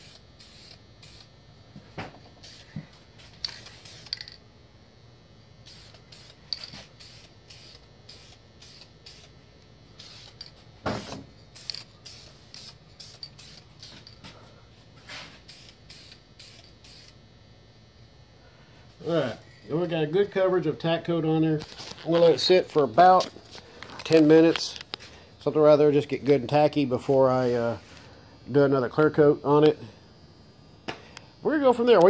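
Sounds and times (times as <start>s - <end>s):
aerosol spray hissing bursts: 0.0s - 1.3s, 2.4s - 2.8s, 3.6s - 4.2s, 5.6s - 9.3s, 10.0s - 14.0s, 15.1s - 17.2s.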